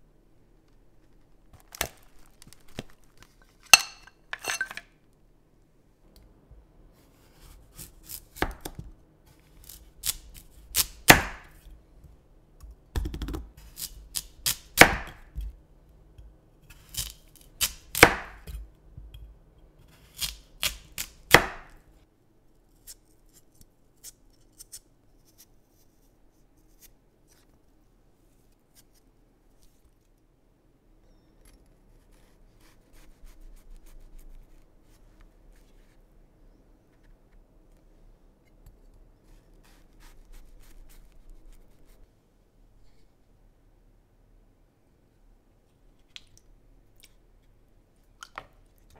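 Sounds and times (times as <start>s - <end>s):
knife slicing radish: 7.0s - 11.7s, 13.5s - 15.6s, 16.6s - 18.7s, 19.8s - 21.8s, 39.2s - 42.0s.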